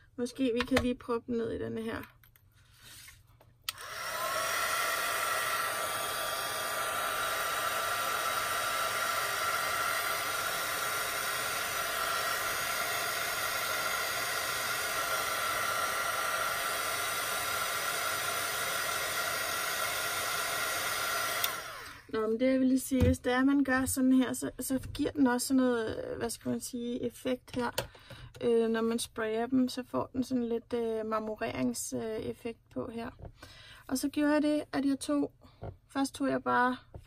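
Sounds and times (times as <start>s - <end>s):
heat gun fan whine: 3.7s - 22.1s.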